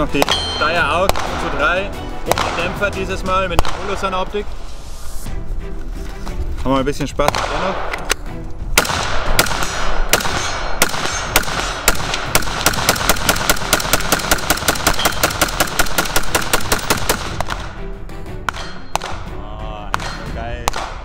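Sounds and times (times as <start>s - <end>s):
rifle shots: 0.0s - 2.8s, 3.5s - 4.1s, 7.2s - 8.1s, 8.7s - 17.8s, 18.5s - 19.2s
background music: 0.0s - 21.0s.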